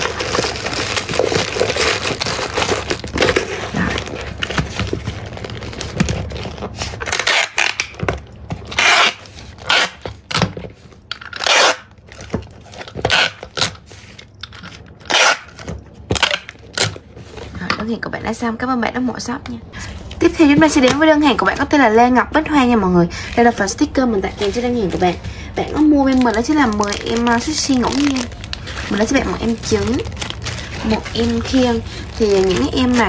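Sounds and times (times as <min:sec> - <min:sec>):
packing tape ripping off roll: 0:00.0 - 0:10.5, 0:11.2 - 0:17.0, 0:26.0 - 0:33.0
plastic-wrapped items rustling: 0:00.0 - 0:18.0, 0:23.1 - 0:33.0.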